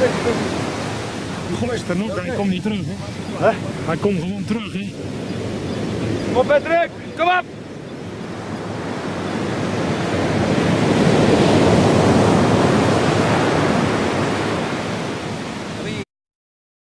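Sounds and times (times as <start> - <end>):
ocean surf breaking: 0.0 - 16.0.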